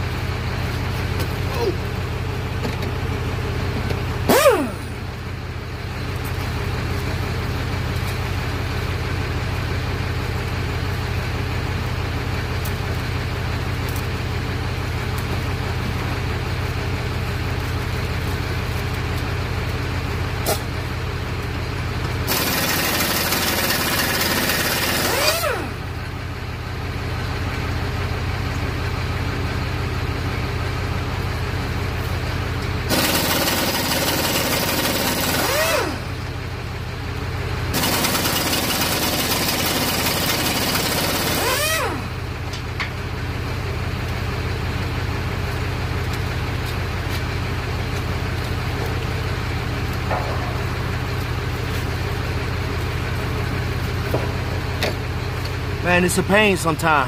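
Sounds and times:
low engine idle hum: 0.0 - 57.0
air-powered cutoff tool: 4.3 - 5.0, 22.3 - 25.8, 35.0 - 36.1, 40.2 - 42.1.

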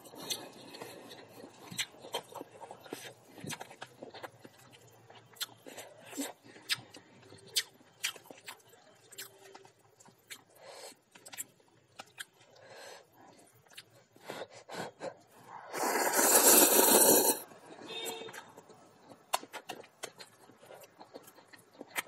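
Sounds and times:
loud slurp of noodles: 15.6 - 17.5.

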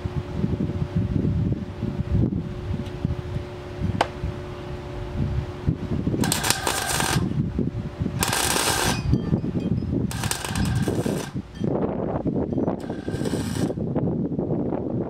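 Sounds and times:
welder arc hissing: 6.2 - 7.3, 8.2 - 9.0, 10.1 - 11.4, 12.8 - 13.8.

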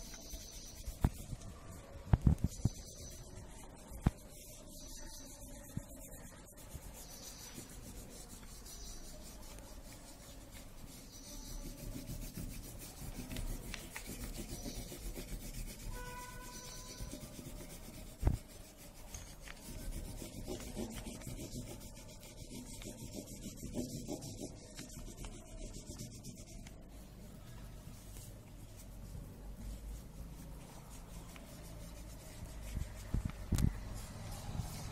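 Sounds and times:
crayon rubbing on paper: 0.0 - 34.9.

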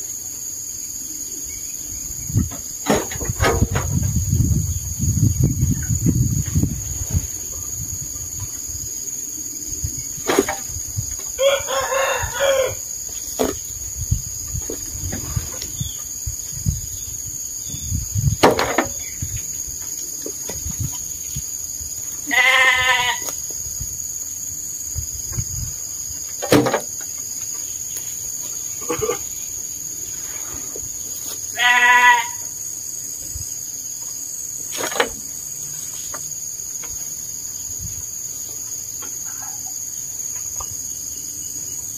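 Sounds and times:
high insect drone: 0.0 - 41.9
farm animals calling: 22.2 - 23.3, 31.5 - 32.5.

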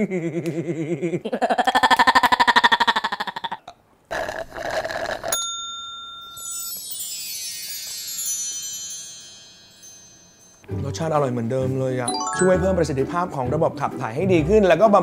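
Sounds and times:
twinkling sparkle chime: 5.4 - 10.7, 12.1 - 13.2.

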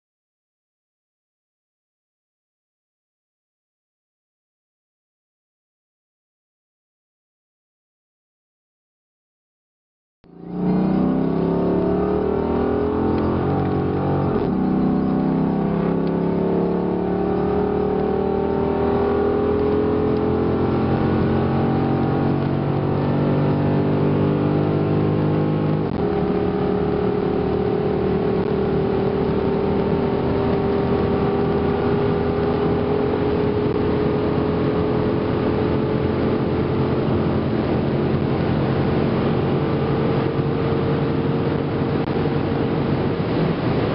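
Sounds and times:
car engine accelerating: 10.3 - 43.9.

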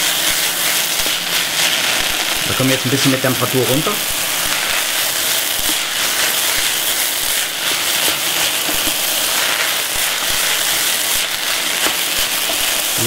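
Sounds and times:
meat and vegetables sizzling: 0.0 - 13.0
wooden spoon stirring: 3.6 - 12.8.

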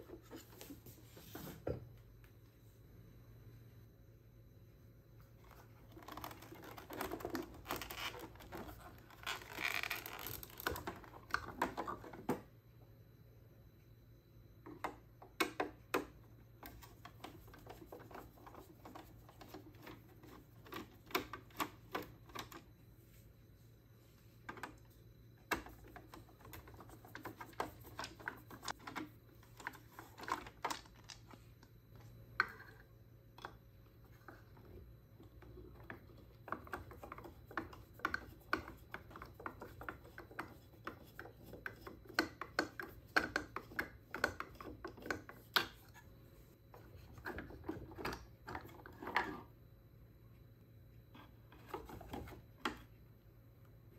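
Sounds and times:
plastic rubbing and scraping: 5.5 - 12.2
small irregular clicks and taps: 34.2 - 46.0.

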